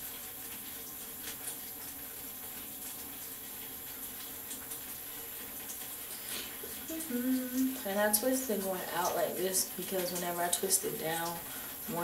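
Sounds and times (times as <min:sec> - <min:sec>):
faint hum: 0:06.1 - 0:09.5.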